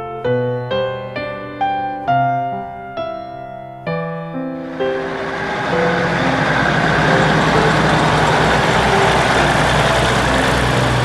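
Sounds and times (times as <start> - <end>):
diesel engine rumble: 4.6 - 11.0
steady hiss: 4.6 - 11.0.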